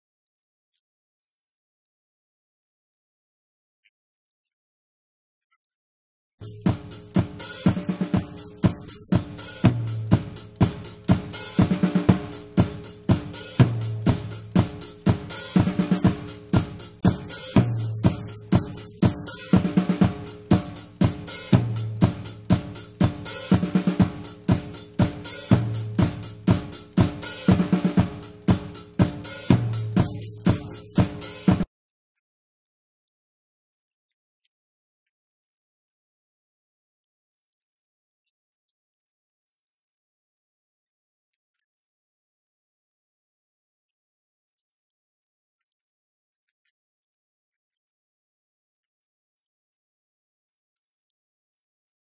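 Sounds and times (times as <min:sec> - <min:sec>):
bass line: 0:06.4 - 0:31.6
drum kit groove: 0:06.4 - 0:31.7.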